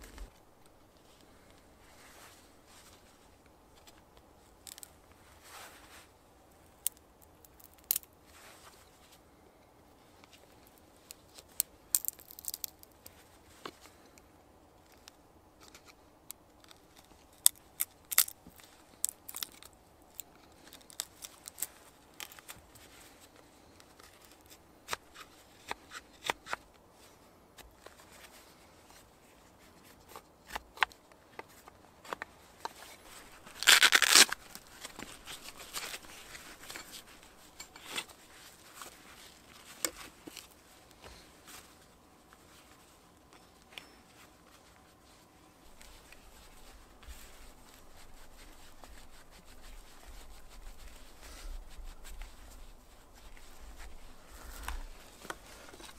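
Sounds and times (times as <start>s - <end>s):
knife shaving wood: 11.0s - 13.8s, 16.6s - 26.6s, 32.7s - 41.8s.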